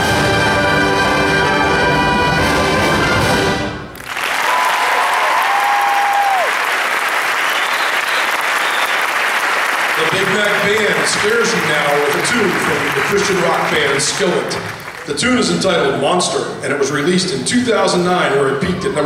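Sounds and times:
brass band chord: 0.0 - 3.9
audience applauding: 3.9 - 15.5
whistle dropping in pitch: 7.4 - 9.1.

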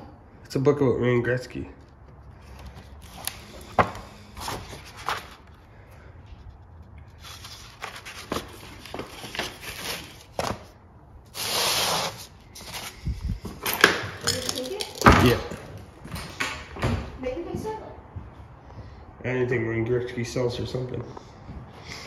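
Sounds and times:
book pages turning: 1.8 - 13.0.

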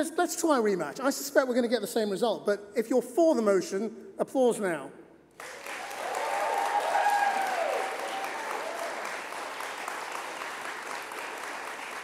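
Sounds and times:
audience applauding: 5.4 - 12.0.

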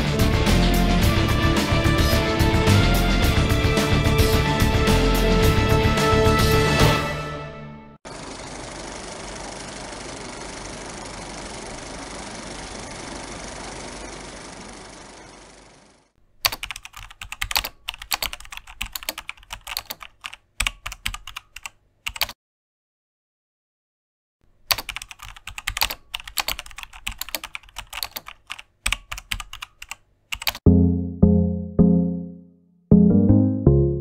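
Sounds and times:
music with deep notes: 0.0 - 7.2, 30.6 - 34.0
keyboard typing: 16.4 - 22.4, 24.6 - 30.6.

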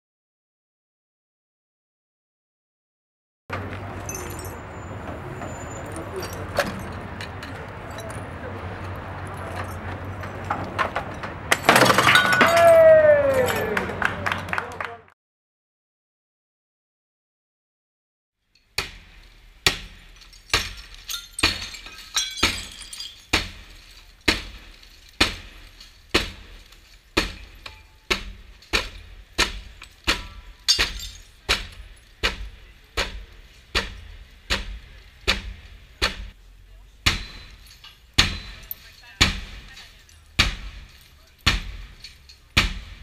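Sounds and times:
crowbar striking glass: 10.4 - 13.0, 18.7 - 36.4, 37.0 - 43.0
glass cracking and crunching: 20.1 - 29.0.

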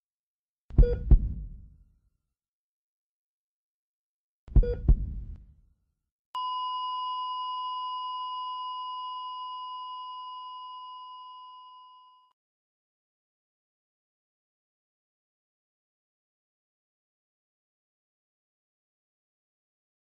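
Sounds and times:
heartbeat double thump: 0.7 - 1.7, 4.5 - 5.4
heart monitor flatline tone: 0.8 - 1.6, 4.6 - 5.4, 6.4 - 12.3.

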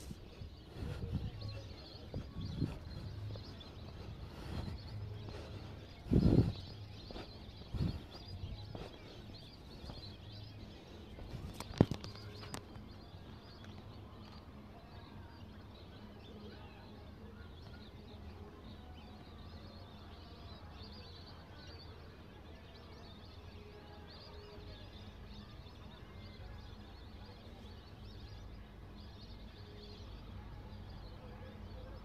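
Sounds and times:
outdoor background noise: 0.0 - 32.0.

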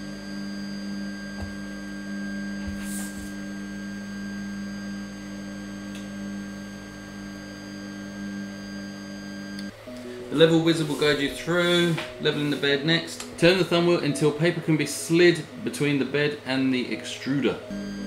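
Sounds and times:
printer motors and fan whining: 9.5 - 15.3.

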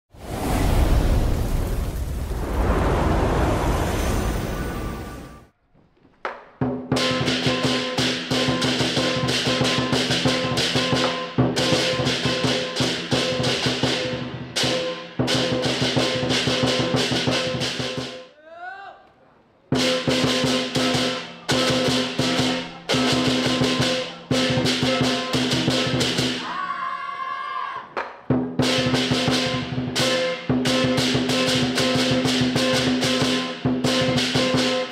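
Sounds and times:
cymbals clashing: 28.7 - 34.9.

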